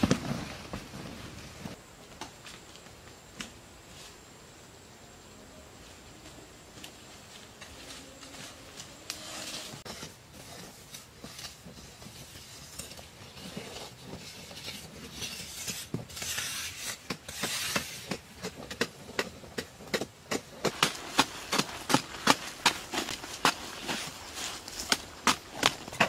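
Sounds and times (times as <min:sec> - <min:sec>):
hand hoes chopping dry soil: 0:15.4 - 0:26.0.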